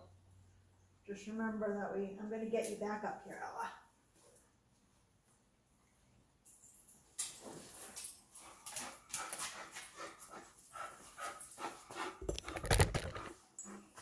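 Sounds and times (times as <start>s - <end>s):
camera handling rustles and clicks: 12.2s - 13.3s.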